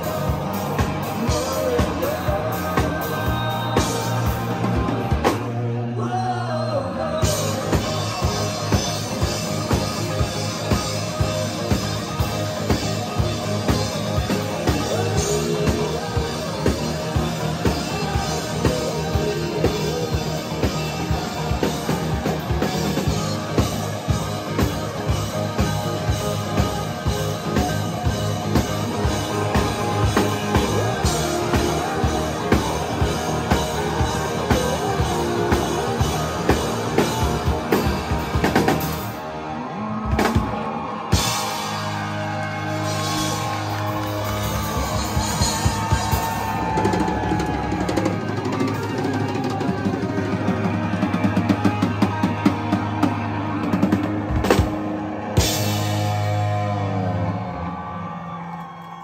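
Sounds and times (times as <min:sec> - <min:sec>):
drum kit beat: 0:00.0 - 0:05.6, 0:07.2 - 0:39.4, 0:40.1 - 0:56.8
person singing: 0:00.0 - 0:39.1
bass guitar: 0:00.0 - 0:59.0
electric guitar: 0:00.0 - 0:59.0.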